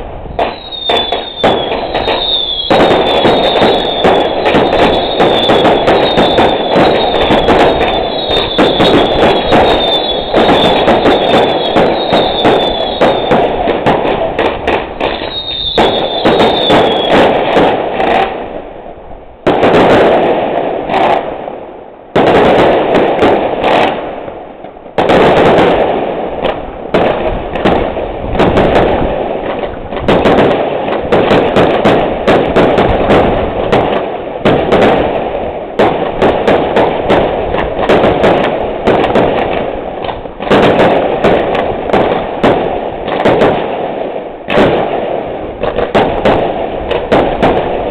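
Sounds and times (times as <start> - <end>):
fireworks crackling and banging: 0.0 - 47.9
firework whistle: 0.3 - 13.9, 14.9 - 17.4.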